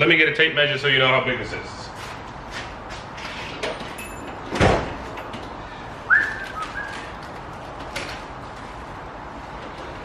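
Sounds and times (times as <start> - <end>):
metal drawer sliding and banging: 3.2 - 5.4.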